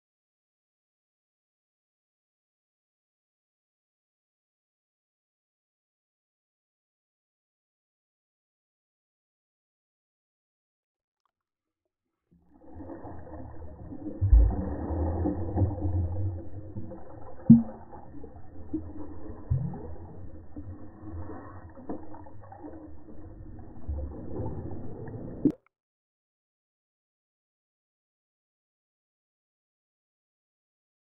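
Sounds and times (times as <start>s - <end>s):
muffled underwater churning: 12.4s - 25.6s.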